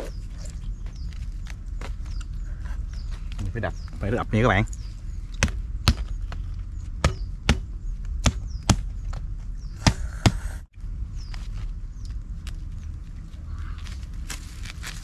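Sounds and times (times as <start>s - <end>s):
bird struck on wooden stump: 7.0s - 8.9s.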